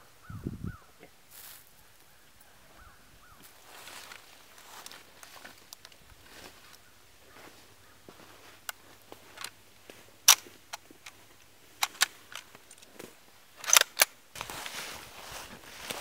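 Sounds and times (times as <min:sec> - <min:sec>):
footsteps in dry leaves: 0:01.3 - 0:02.2, 0:03.2 - 0:10.6, 0:14.4 - 0:16.0
rifle bolt clicks and clacks: 0:08.7 - 0:09.6, 0:10.2 - 0:12.9, 0:13.6 - 0:14.2.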